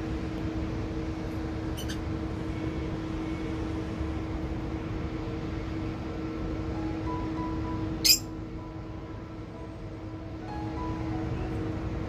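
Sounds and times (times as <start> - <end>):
machine-like hum: 0.0 - 12.0
finch chirp: 1.8 - 2.0, 8.0 - 8.3.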